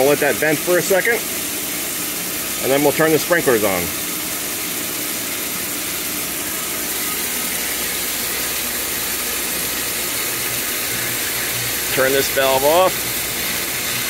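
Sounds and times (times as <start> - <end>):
pump humming: 0.0 - 14.0.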